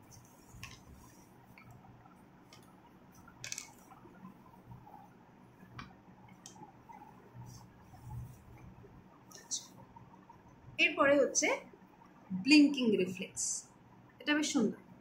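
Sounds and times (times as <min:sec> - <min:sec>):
paper notebook rustling and tapping: 0:00.1 - 0:01.8, 0:03.4 - 0:03.9.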